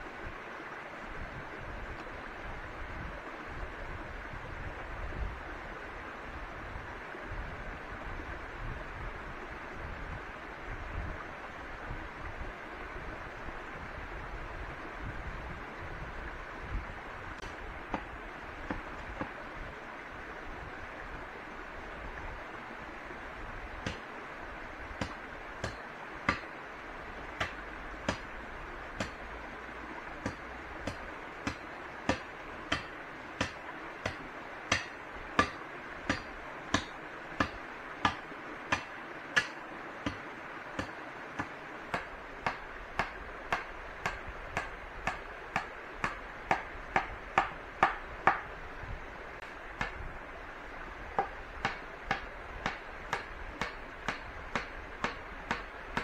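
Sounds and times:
blade chopping wood: 23.8 - 24.0, 25.0 - 26.5, 27.4 - 28.3, 29.0 - 29.2, 30.2 - 40.2, 40.8 - 48.5, 49.8 - 50.0, 51.2 - 56.0.

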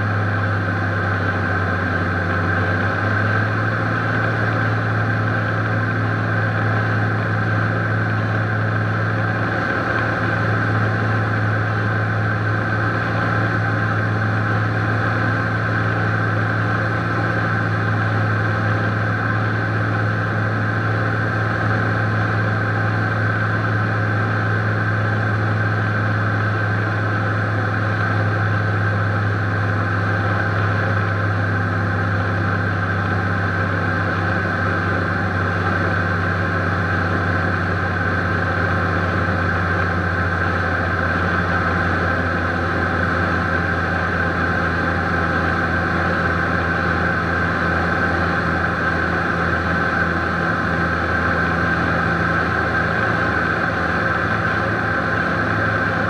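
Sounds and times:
propeller aircraft engines droning: 0.0 - 56.0.

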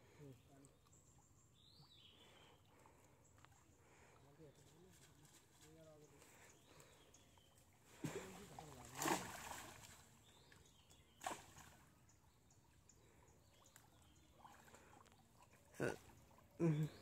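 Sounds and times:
water splashing: 7.9 - 10.2.

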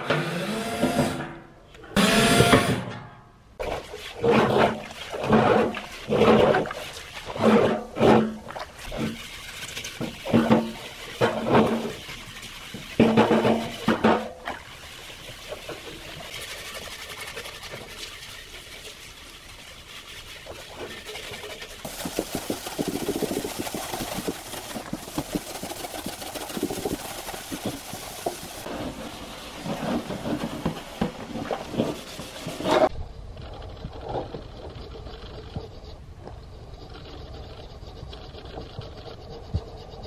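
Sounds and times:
gloved hands scrubbing lids: 3.6 - 32.9
water sloshing: 3.6 - 32.9.

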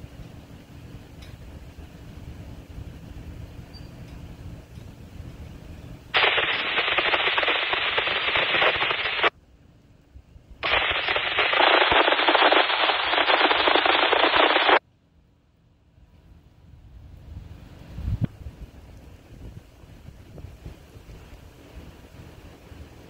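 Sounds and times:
freight train rumble: 0.0 - 11.5
radio static bursts: 6.2 - 9.3, 10.6 - 14.8.

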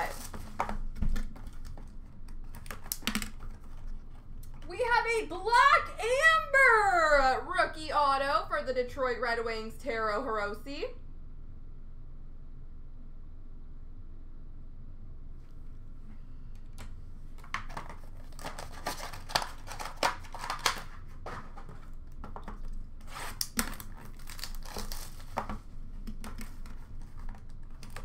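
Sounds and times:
cardboard and plastic crinkling: 0.0 - 4.7, 17.4 - 28.0.

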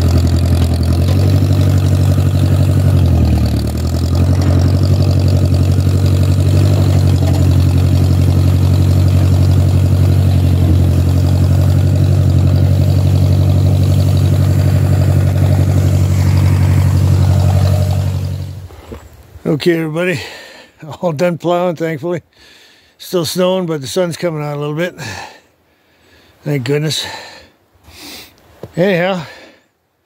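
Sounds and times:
tractor engine running: 0.0 - 19.4.

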